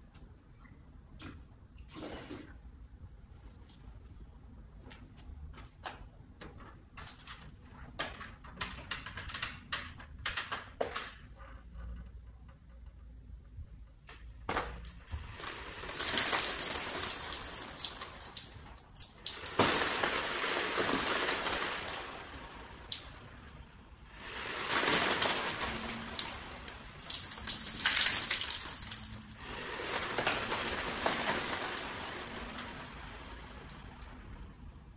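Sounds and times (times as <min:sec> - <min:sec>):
water poured over salt crystals: 0:15.0 - 0:22.6, 0:24.1 - 0:33.8.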